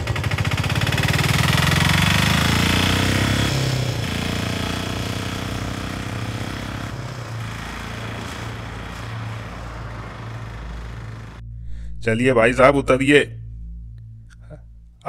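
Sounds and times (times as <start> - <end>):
auto-rickshaw engine puttering: 0.0 - 11.4.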